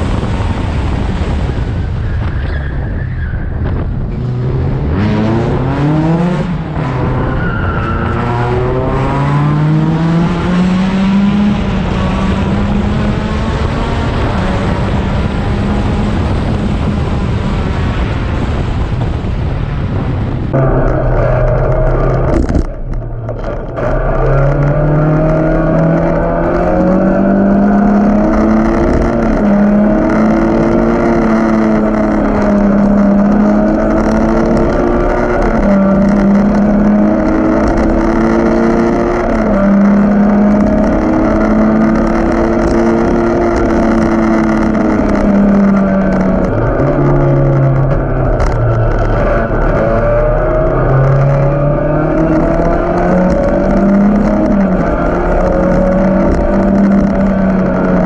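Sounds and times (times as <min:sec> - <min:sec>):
race car engine at high revs: 0:03.6 - 0:58.0.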